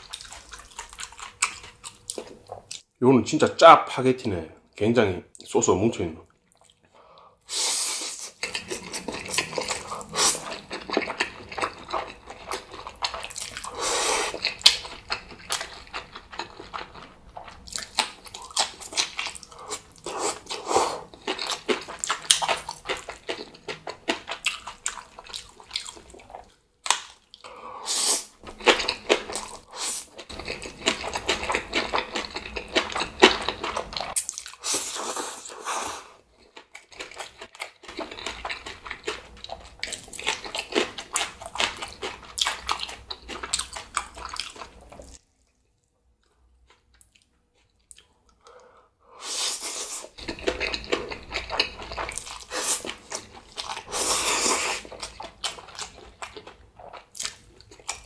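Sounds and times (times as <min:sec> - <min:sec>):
wet smacking and chewing: 0:00.0 - 0:02.8, 0:06.4 - 0:06.9, 0:08.3 - 0:27.5, 0:28.4 - 0:34.8, 0:36.4 - 0:45.6, 0:50.2 - 0:58.0
slurping noodles: 0:07.5 - 0:12.1, 0:27.8 - 0:28.3, 0:29.3 - 0:36.2, 0:49.2 - 0:55.2.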